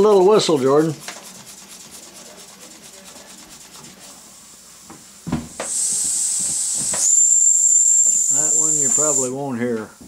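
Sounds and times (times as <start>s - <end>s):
steam whistle hiss: 5.6s - 9.4s
toy steam engine chuffing: 7.8s - 9.3s.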